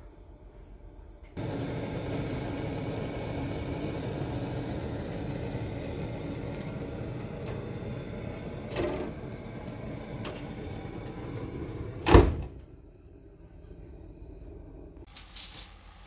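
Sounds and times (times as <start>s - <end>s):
gas oven rushing hum: 0.0s - 15.1s
oven knock: 7.2s - 12.7s.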